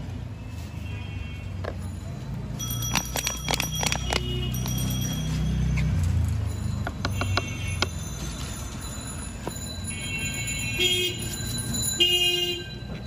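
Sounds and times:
plastic bottles clicking: 2.9 - 4.8.

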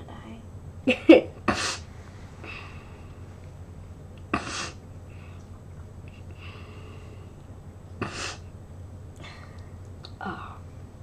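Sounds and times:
steady low hum: 0.0 - 11.0
girl snorting through nose: 1.5 - 1.8, 4.3 - 4.8, 8.0 - 8.4.

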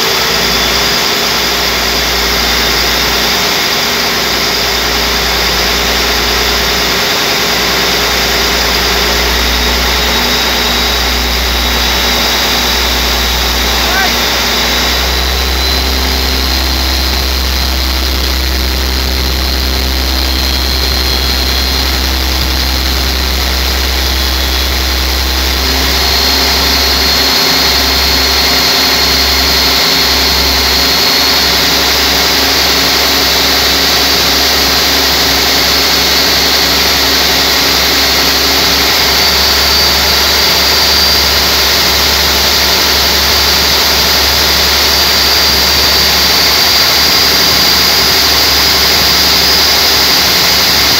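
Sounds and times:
diesel engine running: 0.0 - 50.9
high-pitched whine: 0.0 - 50.9.

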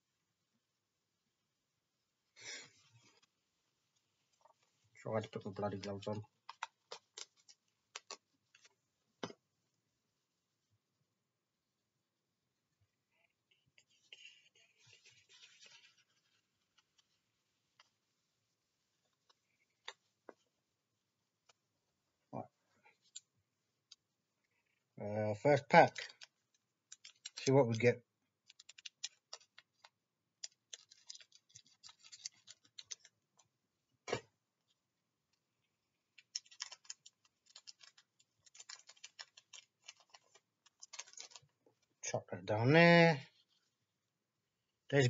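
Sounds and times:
foil pack crinkling: 28.4 - 33.1, 36.2 - 41.5.

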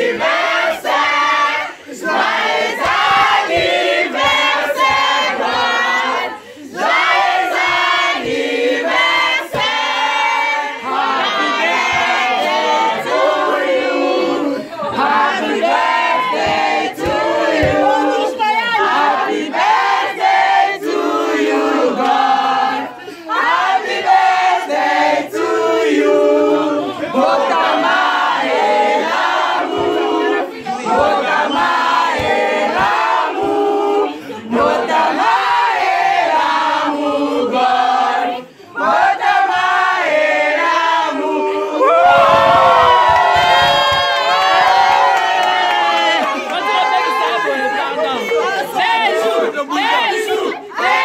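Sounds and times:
group of people singing: 0.0 - 51.0.

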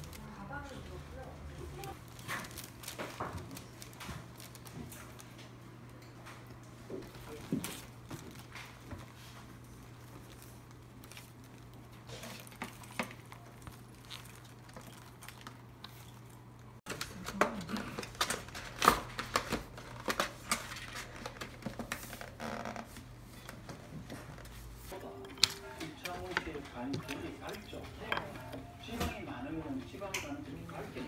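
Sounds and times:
paper crinkling and rustling: 1.6 - 5.6, 7.0 - 29.2.

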